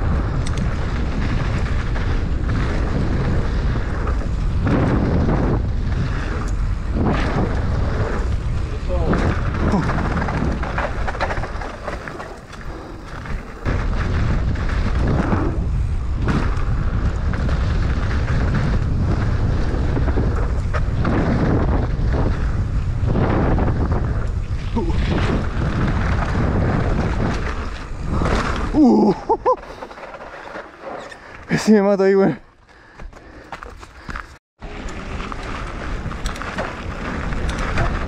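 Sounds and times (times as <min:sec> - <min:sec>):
wind buffeting microphone: 0:00.0 - 0:29.8
bike knocks and rattles: 0:00.0 - 0:31.3, 0:32.9 - 0:38.0
bike tyres on loose dirt: 0:00.0 - 0:38.0.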